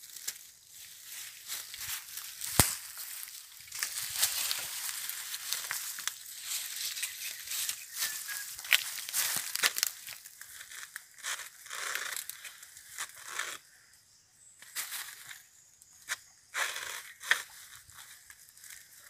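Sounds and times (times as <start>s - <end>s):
dry leaves crackling and rustling: 0.0s - 11.9s.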